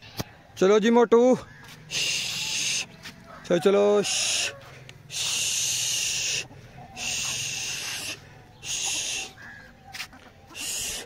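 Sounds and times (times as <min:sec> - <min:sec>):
person hushing shhh: 0:01.9 - 0:02.9, 0:04.1 - 0:09.4, 0:10.6 - 0:11.0.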